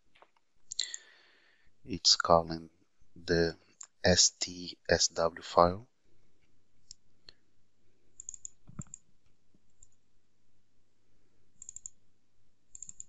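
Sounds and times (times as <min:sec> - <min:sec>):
computer mouse double-clicks: 0:08.2 - 0:09.0, 0:11.6 - 0:12.0, 0:12.7 - 0:13.0.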